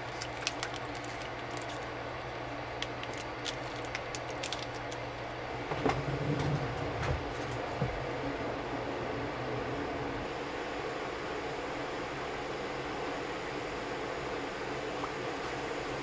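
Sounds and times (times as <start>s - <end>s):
low machine hum: 0.0s - 16.0s
rough low rumble: 5.5s - 10.2s.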